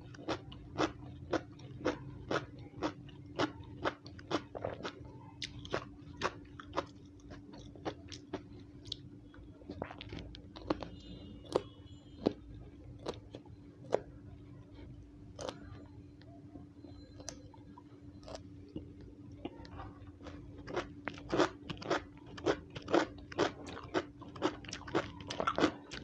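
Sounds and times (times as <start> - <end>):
crunchy beans chewed: 0.0 - 14.1, 14.7 - 26.0.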